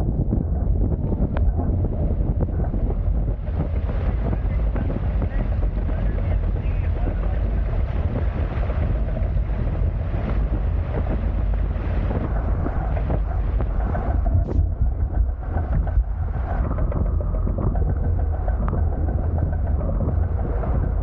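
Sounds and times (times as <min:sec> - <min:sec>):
water rushing along hulls: 0:00.0 - 0:21.0
wind buffeting microphone: 0:00.0 - 0:21.0.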